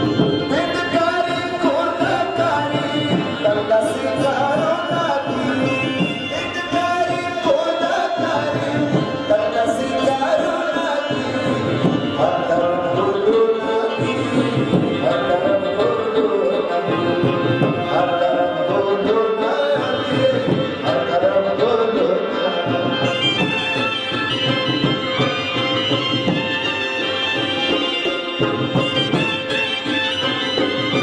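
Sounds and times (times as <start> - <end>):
rhythmic drums: 0.0 - 31.0.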